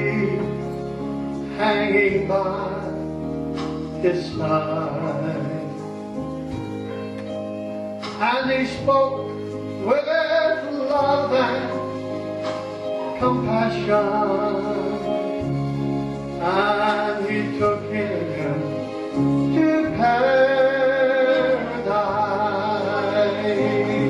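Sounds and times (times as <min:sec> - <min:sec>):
person singing gospel song: 0:00.0 - 0:00.6, 0:01.5 - 0:03.0, 0:08.2 - 0:11.9, 0:13.0 - 0:15.5, 0:16.4 - 0:24.0
instrumental accompaniment: 0:00.0 - 0:24.0.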